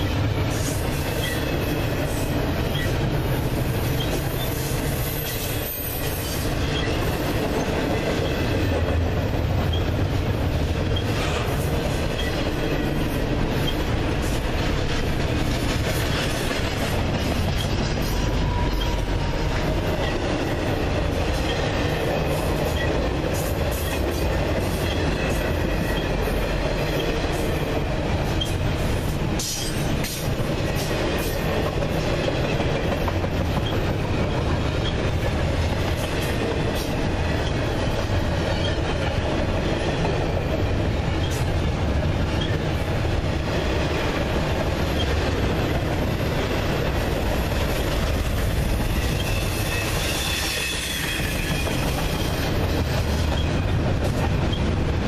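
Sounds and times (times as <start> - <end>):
wheels clicking over rail joints: 0.0 - 49.4
train wheels rumbling on rail: 0.0 - 55.0.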